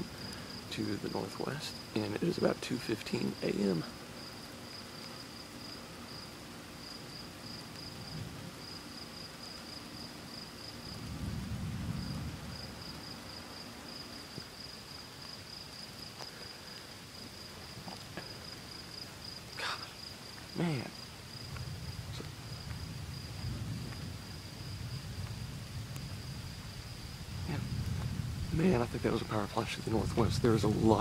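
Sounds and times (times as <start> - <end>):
crickets chirping: 0.0 - 31.0
distant thunder rumble: 7.1 - 14.8, 20.5 - 31.0.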